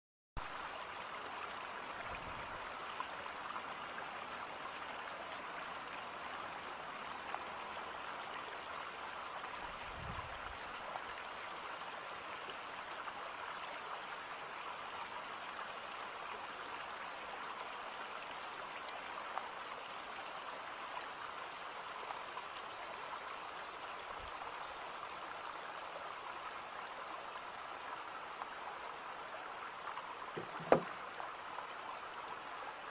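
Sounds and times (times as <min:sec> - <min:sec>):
rushing water: 0:00.4 - 0:32.9
soft low bumps: 0:30.4 - 0:30.9.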